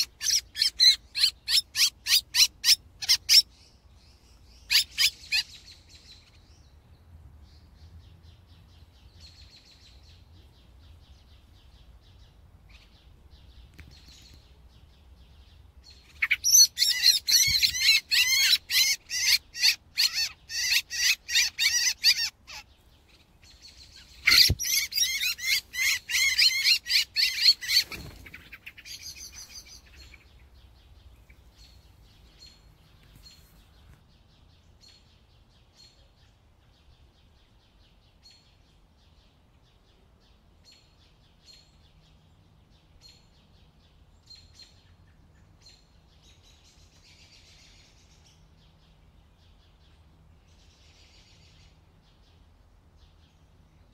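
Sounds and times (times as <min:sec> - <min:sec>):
blackbird alarm chatter: 0:00.0 - 0:06.7, 0:08.1 - 0:38.5.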